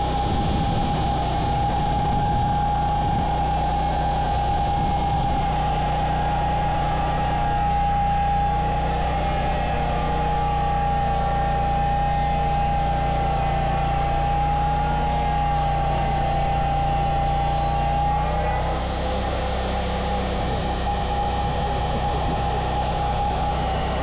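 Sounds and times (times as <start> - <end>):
portable sawmill sawing log: 1.0 - 20.5.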